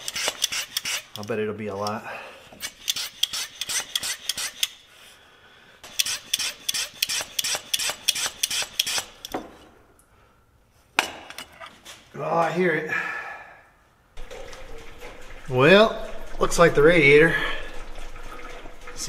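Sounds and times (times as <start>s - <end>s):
hand pump strokes: 0.0s - 1.9s, 2.5s - 4.8s, 5.8s - 9.3s.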